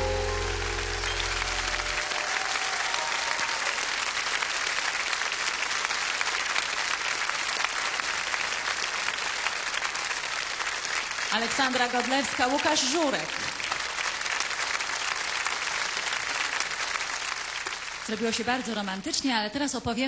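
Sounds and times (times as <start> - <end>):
band's held chord ringing: 0.0 - 2.1
audience applauding: 0.0 - 18.6.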